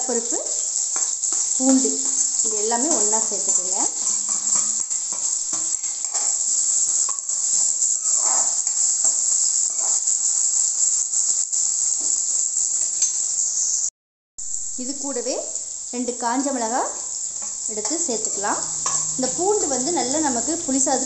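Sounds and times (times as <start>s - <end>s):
food sizzling in hot oil: 0.0s - 21.0s
ladle scraping and knocking pan: 0.9s - 10.1s.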